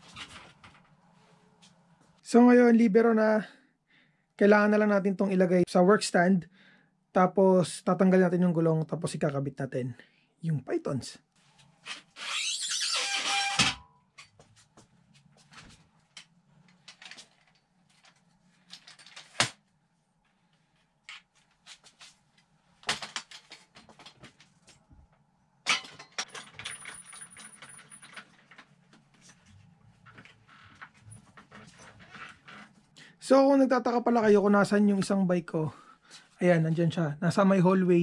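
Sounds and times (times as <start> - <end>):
metal parts clicking and knocking: 25.7 - 28.6.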